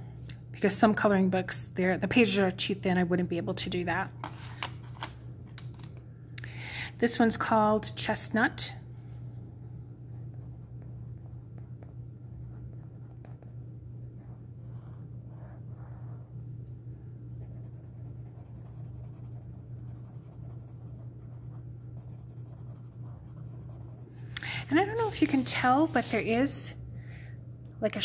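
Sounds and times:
steady low hum: 0.0 - 28.0
pencil scratching on paper: 10.1 - 16.3, 17.4 - 24.2, 24.8 - 26.3
pencil shading strokes: 17.4 - 26.4.

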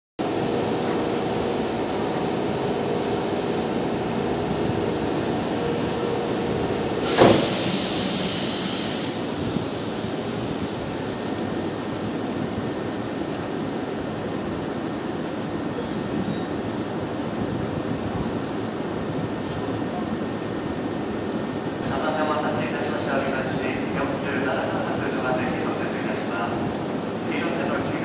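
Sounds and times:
train hum: 0.2 - 28.0
sharp hiss: 4.8 - 9.3.

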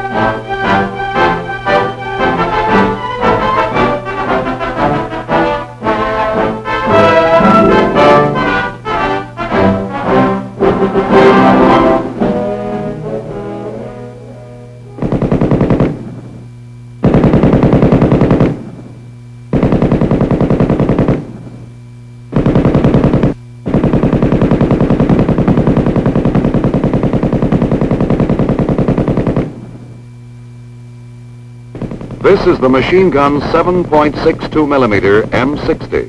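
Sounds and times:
orchestral brass music: 0.0 - 15.2
machine gun automatic fire: 14.9 - 16.4, 17.0 - 18.9, 19.5 - 21.6, 22.3 - 29.9, 31.7 - 36.0.

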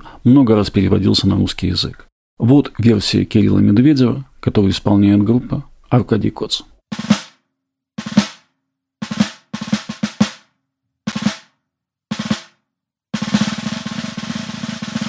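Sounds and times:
snare drum rolls: 6.9 - 7.4, 8.0 - 10.5, 11.1 - 11.5, 12.1 - 12.6, 13.2 - 15.0.

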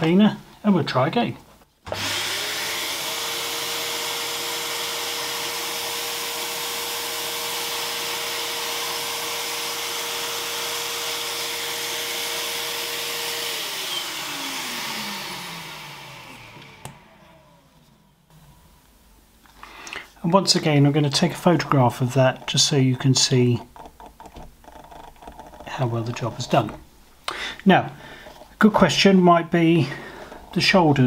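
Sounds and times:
vacuum cleaner motor whine: 1.9 - 18.7.

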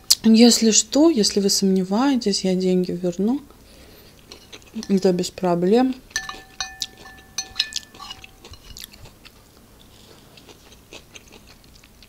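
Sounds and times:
quiet chewing: 3.5 - 5.1, 6.0 - 12.0
fork scraping porcelain plate: 4.3 - 5.1, 6.1 - 8.9
plate ringing: 4.8 - 5.2, 6.1 - 8.6.

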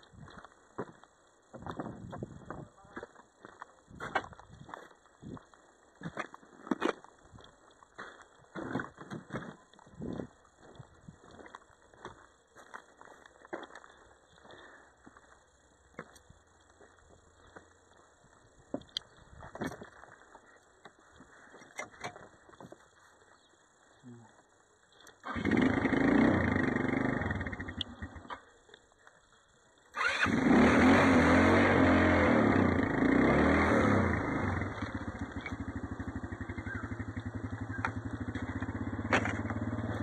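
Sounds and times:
small engine idling: 25.1 - 28.6, 31.8 - 40.0.

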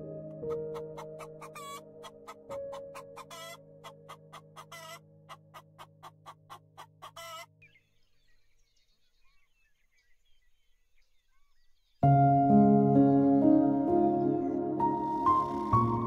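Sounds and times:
guineafowl harsh calls: 0.7 - 7.6
faint small bird chirps: 7.1 - 12.0.

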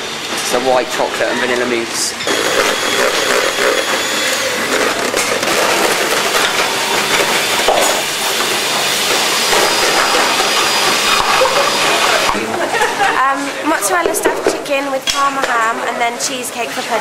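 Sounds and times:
pans and utensils clattering: 5.2 - 13.2, 13.8 - 15.6.

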